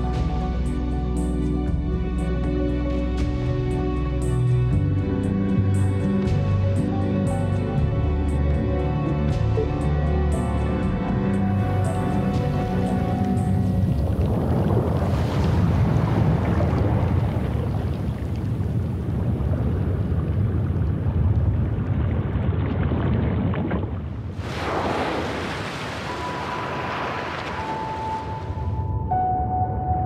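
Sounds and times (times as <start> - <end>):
ocean water rushing: 11.5 - 29.2.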